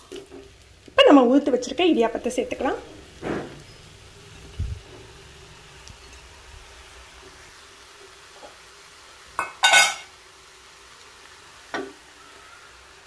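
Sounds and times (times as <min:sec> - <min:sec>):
kitchenware clattering: 0:09.4 - 0:10.1.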